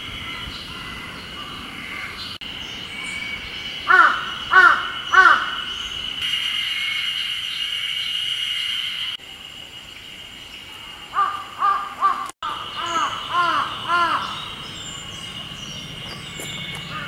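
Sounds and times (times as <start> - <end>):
high-pitched cicada chorus: 2.4 - 17.0
crow cawing: 3.9 - 5.6, 11.1 - 14.4.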